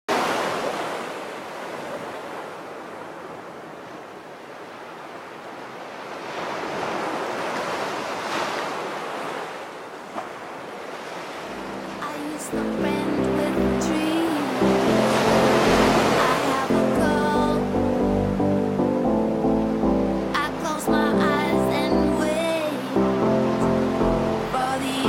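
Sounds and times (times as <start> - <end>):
sea surf washing in: 10.9 - 25.0.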